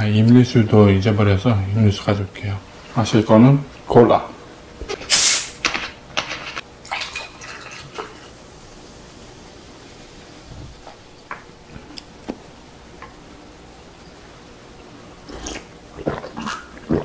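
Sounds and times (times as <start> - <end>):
cola pouring and fizzing: 6.8 - 8.4.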